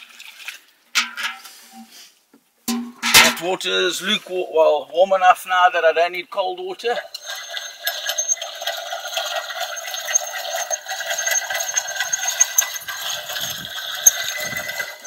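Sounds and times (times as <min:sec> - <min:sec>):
water running and splashing: 0:07.0 - 0:15.0.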